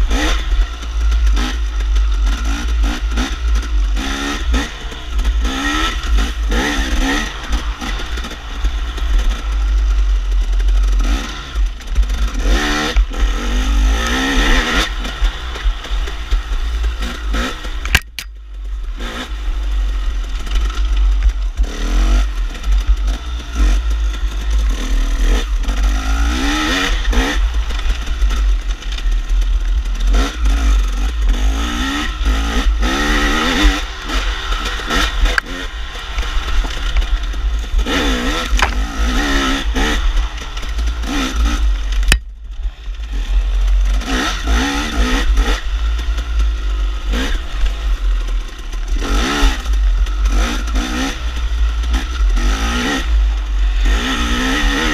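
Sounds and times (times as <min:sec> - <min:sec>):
bike rattling: 0:00.0 - 0:54.9
dirt bike engine revving: 0:00.0 - 0:54.9
sharp click: 0:17.8 - 0:18.4, 0:38.4 - 0:38.8, 0:41.9 - 0:42.3.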